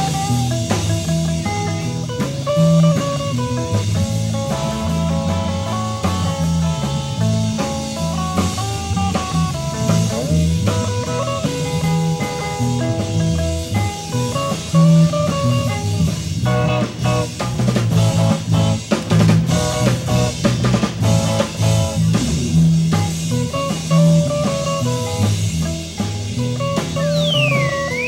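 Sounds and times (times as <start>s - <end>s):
rock and roll band playing: 0.0s - 28.0s.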